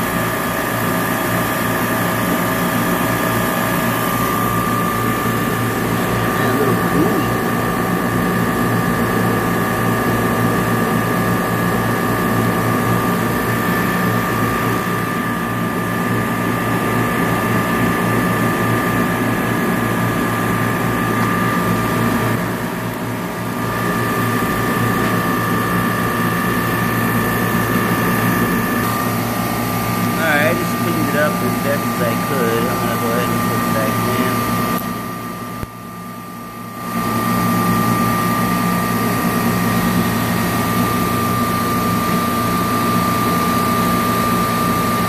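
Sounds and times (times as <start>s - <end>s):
compressors droning: 0.0s - 45.0s
high whines: 3.5s - 8.1s, 23.7s - 34.8s.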